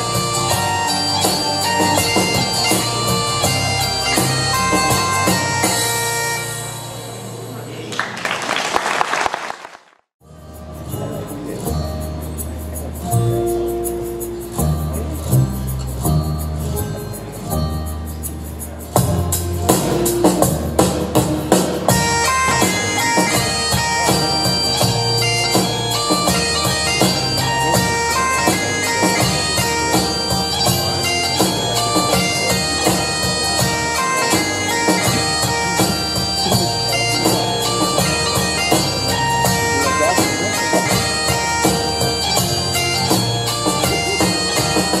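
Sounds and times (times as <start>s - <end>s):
bagpipe music: 0.0s - 7.8s, 19.8s - 45.0s.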